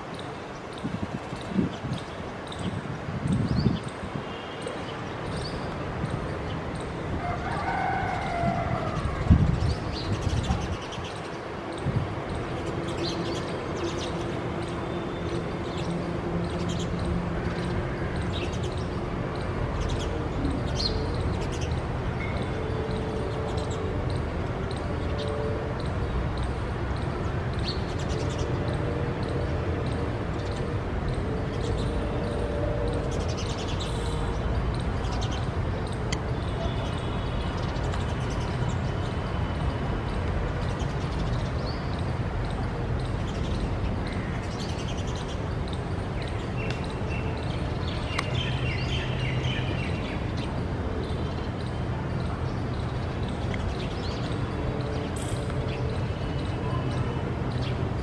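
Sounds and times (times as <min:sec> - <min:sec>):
small birds chirping: 0:40.6 - 0:58.0.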